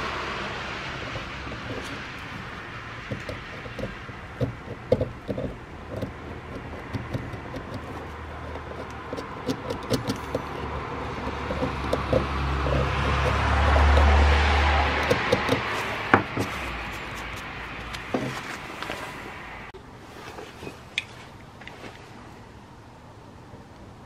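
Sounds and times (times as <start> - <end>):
metal pick scraping screw head: 1.0 - 18.0.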